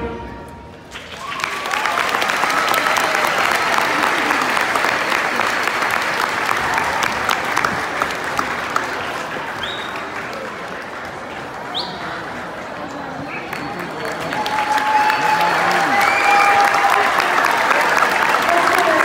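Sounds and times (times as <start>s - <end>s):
concert band music: 0.0s - 1.0s
audience applause: 0.9s - 19.0s
whoops and cheers: 1.1s - 4.5s, 14.2s - 18.0s.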